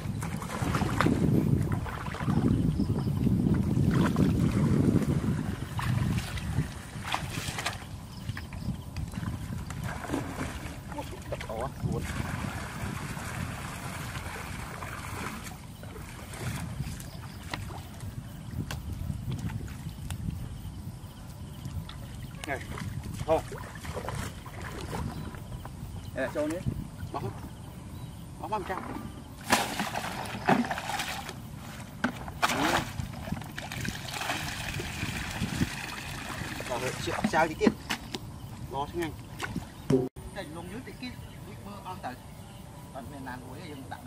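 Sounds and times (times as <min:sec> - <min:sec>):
muddy water sloshing: 0:00.0 - 0:20.5, 0:21.6 - 0:27.7, 0:28.5 - 0:40.1
wind on microphone: 0:00.0 - 0:40.2
small splashes and ticks: 0:03.5 - 0:20.4, 0:21.3 - 0:26.7, 0:29.4 - 0:38.2.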